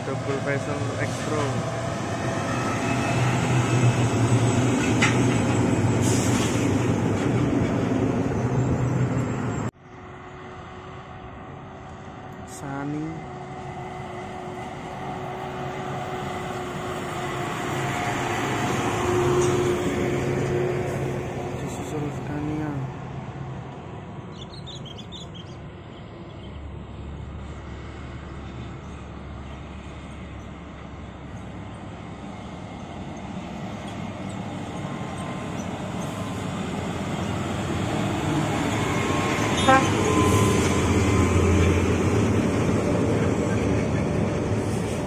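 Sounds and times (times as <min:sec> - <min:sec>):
truck engine and tyres passing: 0:00.0 - 0:45.0
truck horn toot: 0:39.6 - 0:40.4.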